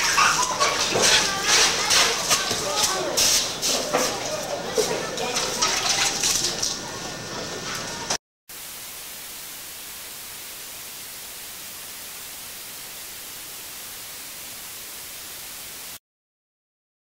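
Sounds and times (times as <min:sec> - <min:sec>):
outdoor water noise: 0:00.0 - 0:16.0
tape hiss: 0:08.5 - 0:16.0.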